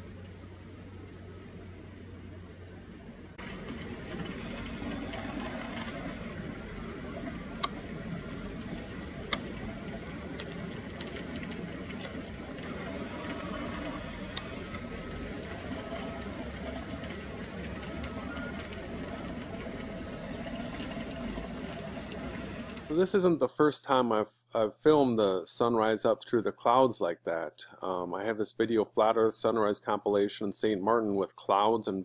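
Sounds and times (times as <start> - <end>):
outdoor rumble and hiss: 0.0 - 32.0
sharp clicks: 7.1 - 22.9.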